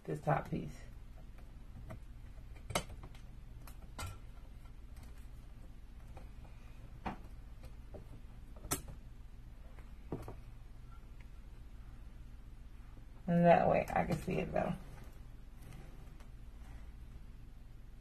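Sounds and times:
steady low hum: 0:00.0 - 0:18.0
wire clicks and taps: 0:01.1 - 0:09.0.

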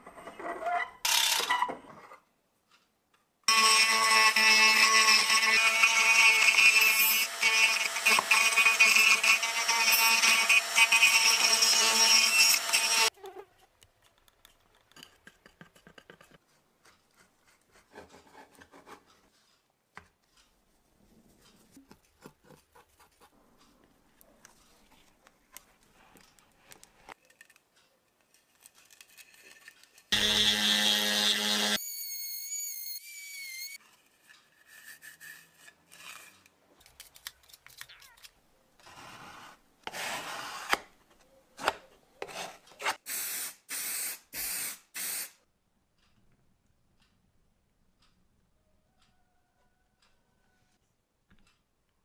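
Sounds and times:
rotary tool grinding wood: 0:03.5 - 0:13.1.

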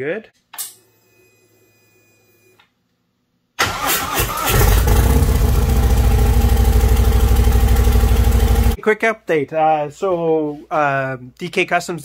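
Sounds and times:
motorcycle engine starting and idling: 0:03.6 - 0:08.8.

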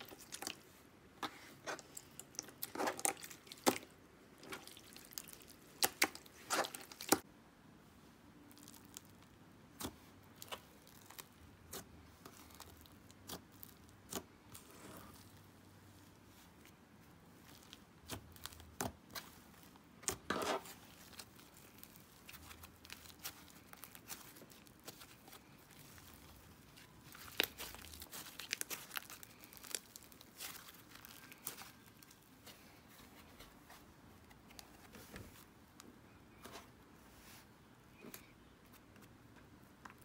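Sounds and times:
slime squelching and crackling: 0:00.0 - 0:07.3, 0:08.4 - 0:33.4.

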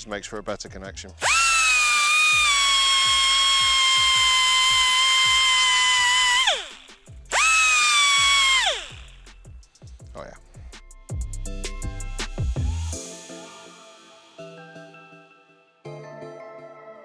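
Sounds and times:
air grinder high whine: 0:01.2 - 0:09.2.

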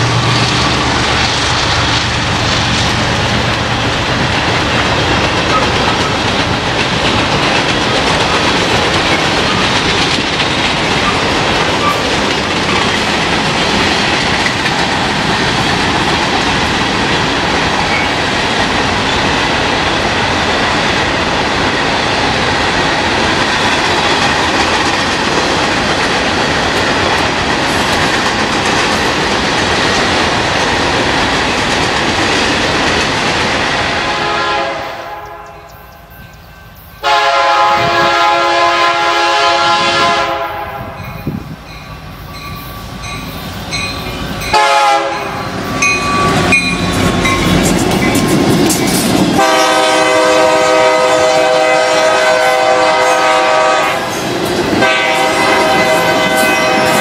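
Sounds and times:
freight train wheels rolling on rail: 0:00.0 - 0:57.0
locomotive air horn blast: 0:33.8 - 0:35.7, 0:37.0 - 0:41.0, 0:44.5 - 0:45.4, 0:49.4 - 0:54.1, 0:54.8 - 0:57.0.

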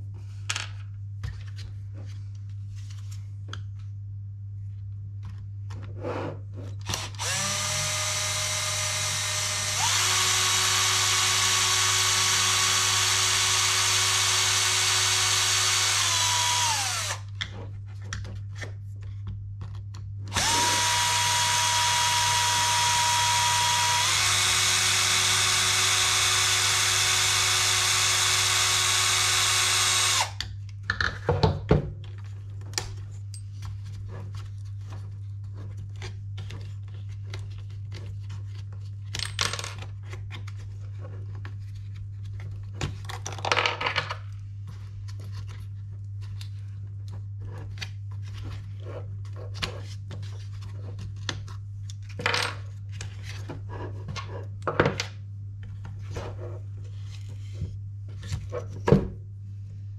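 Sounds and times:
electric screwdriver running: 0:06.8 - 0:17.3, 0:20.3 - 0:30.4.

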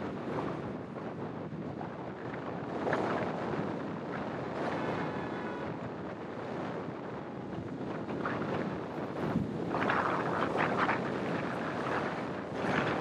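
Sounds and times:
wind buffeting microphone: 0:00.0 - 0:13.0
road and traffic noise: 0:04.0 - 0:07.8.

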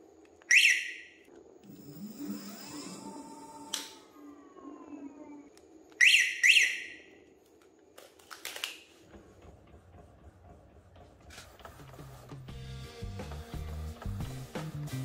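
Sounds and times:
electronic alarm chirps: 0:00.5 - 0:04.1, 0:06.0 - 0:07.2.

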